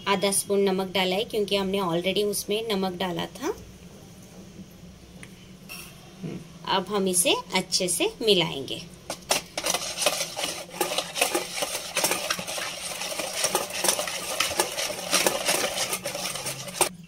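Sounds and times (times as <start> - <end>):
whisk clicking and scraping bowl: 9.1 - 17.0.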